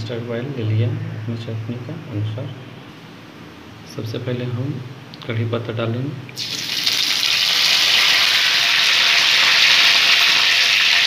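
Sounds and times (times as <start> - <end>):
leaves sizzling in hot oil: 6.4 - 11.0.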